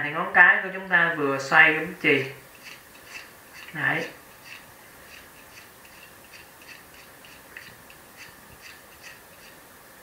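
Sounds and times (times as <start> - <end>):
knife blade scraping pencil lead: 2.5 - 9.6.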